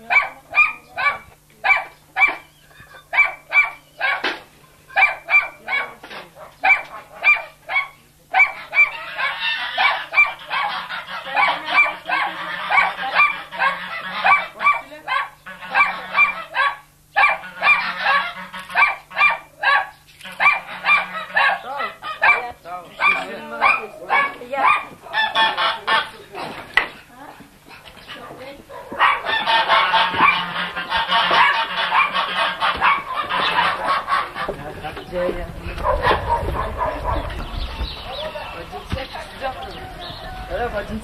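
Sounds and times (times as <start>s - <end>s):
rough background noise: 0.0s - 41.0s
geese honking: 8.4s - 26.7s, 28.0s - 41.0s.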